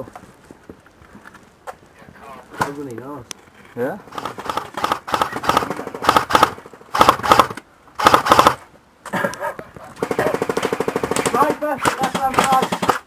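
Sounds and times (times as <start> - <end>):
airsoft gun firing bursts: 4.1 - 8.6, 10.0 - 13.0.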